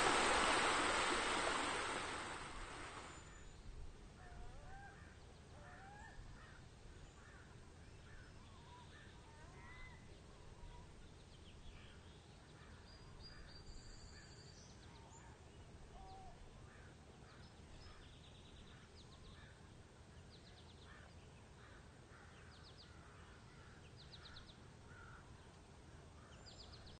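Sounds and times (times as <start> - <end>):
low steady rumble: 0.0 - 3.2
distant birds calling: 0.0 - 3.3.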